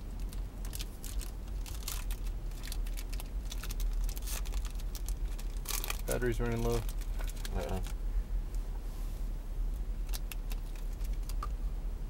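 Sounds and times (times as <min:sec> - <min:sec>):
steady low rumble: 0:00.0 - 0:12.0
foil wrapper crinkling: 0:00.2 - 0:08.0, 0:10.0 - 0:11.4.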